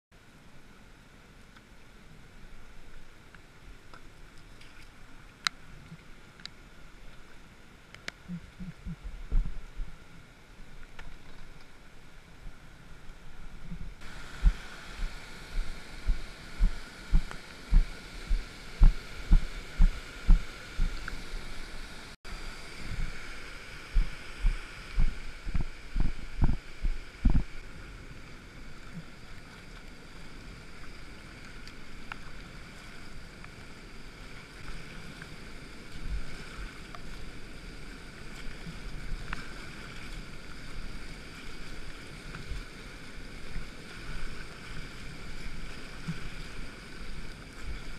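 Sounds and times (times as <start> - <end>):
dull low knocks: 8.3 - 9.9, 13.7 - 21.0, 24.0 - 27.5
river water rushing over weir: 11.7 - 47.9.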